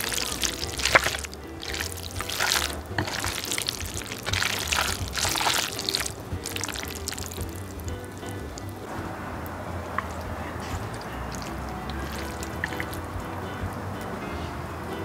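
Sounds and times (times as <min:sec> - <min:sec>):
chopsticks stirring saucy noodles: 0:00.0 - 0:08.8, 0:10.0 - 0:13.1.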